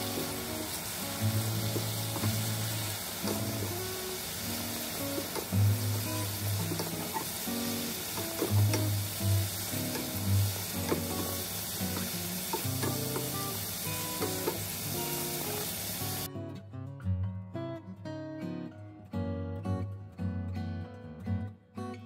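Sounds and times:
food sizzling in oil: 0.0 - 16.3.

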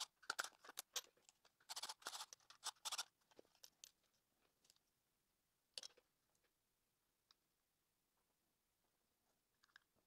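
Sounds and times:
plastic parts clicking and rattling: 0.0 - 4.9.

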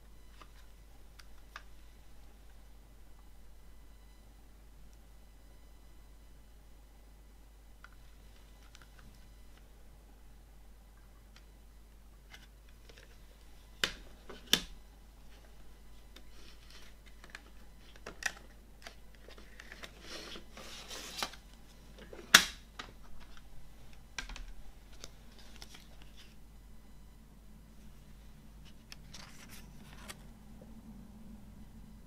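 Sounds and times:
paper sliding rustle: 19.3 - 21.4.

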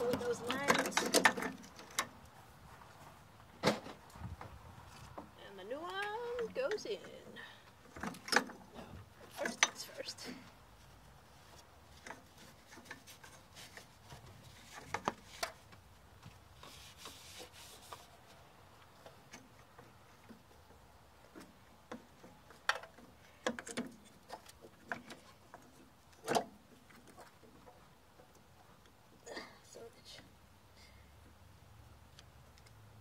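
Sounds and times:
paper towel rubbing and wiping: 16.6 - 18.4.

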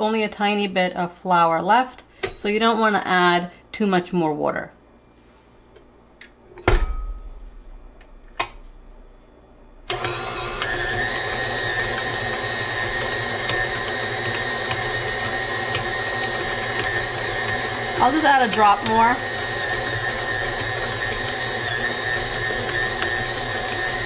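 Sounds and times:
heavy clunk: 6.6 - 7.5
stand mixer running: 9.9 - 24.0.

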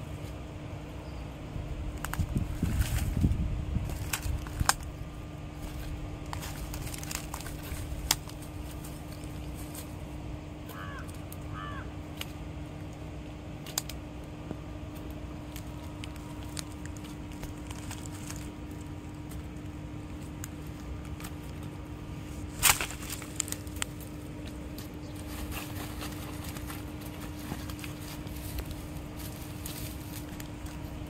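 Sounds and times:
faint steady hum: 0.0 - 31.0
plastic bag crackling: 2.0 - 9.9, 15.4 - 31.0.

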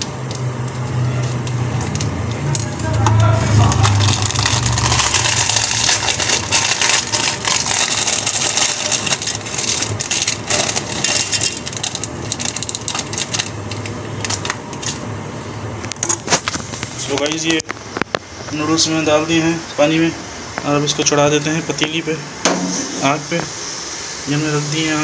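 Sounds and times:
plastic packet crinkling: 0.0 - 15.1
steady low hum: 0.0 - 25.0.

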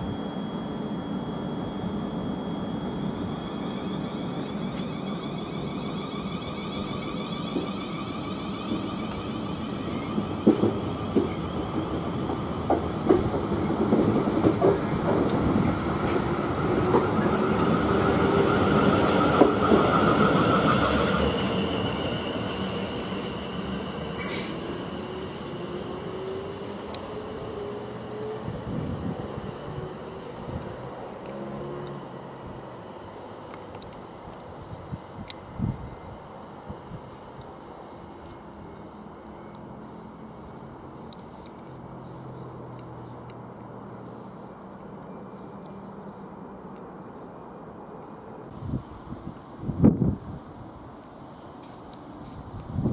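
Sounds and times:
electric train motors whining: 0.2 - 13.8
train wheels clicking over rails: 4.4 - 27.2.

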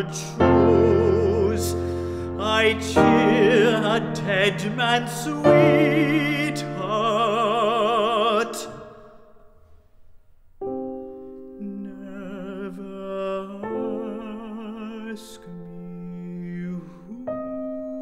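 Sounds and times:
soft piano chords: 0.0 - 8.9, 10.6 - 18.0
tenor singing with vibrato: 0.0 - 9.4.

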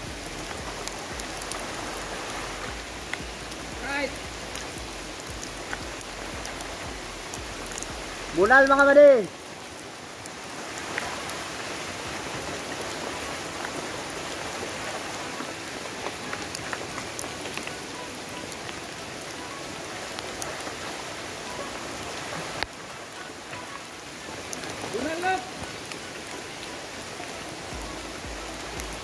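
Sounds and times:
steady rain falling: 0.0 - 29.0
drops ticking close by: 0.1 - 8.8.

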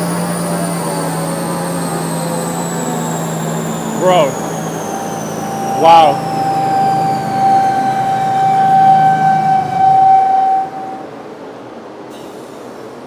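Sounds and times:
mechanical whine: 0.0 - 11.4
low hum: 2.8 - 11.2.

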